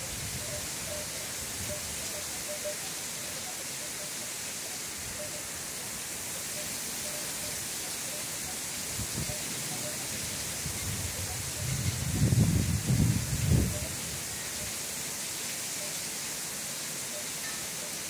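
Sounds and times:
heavy rain hissing: 0.0 - 18.0.

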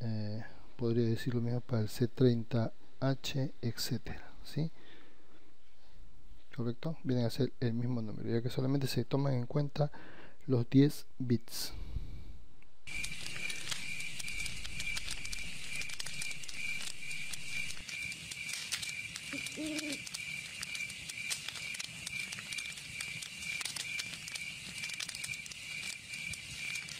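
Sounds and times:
fire crackling: 12.8 - 26.9
high chirping pulse: 12.9 - 26.9.

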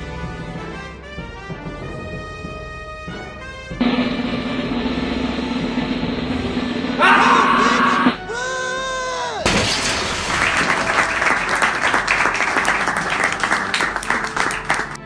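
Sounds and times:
short pitched cry: 7.0 - 8.3
crowd clapping: 10.0 - 15.0.

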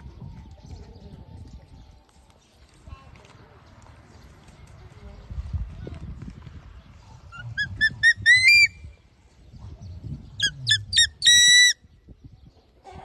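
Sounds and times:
young eagle calling: 7.4 - 8.8, 10.4 - 11.8.

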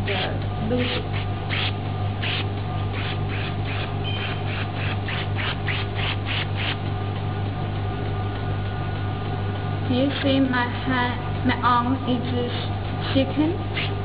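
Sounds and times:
suction device humming: 0.0 - 7.5, 12.4 - 14.0.

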